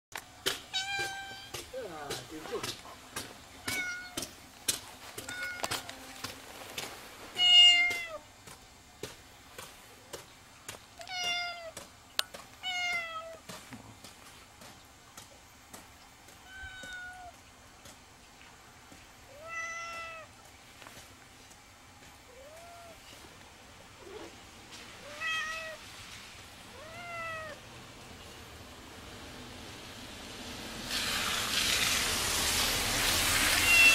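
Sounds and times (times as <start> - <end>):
cat meowing: 0.7 - 1.6, 3.7 - 4.2, 5.2 - 5.9, 7.4 - 8.2, 16.4 - 17.4, 19.3 - 20.3, 22.3 - 23.0, 25.0 - 25.8, 26.7 - 27.6, 33.5 - 33.9.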